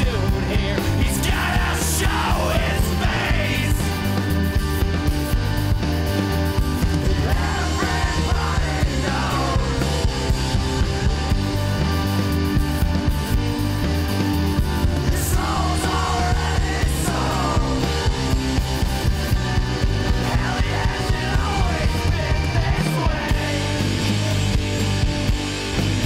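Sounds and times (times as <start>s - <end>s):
person singing: 0.0s - 3.9s, 7.0s - 9.9s, 15.0s - 18.0s, 20.2s - 23.8s
rock music: 0.0s - 26.0s.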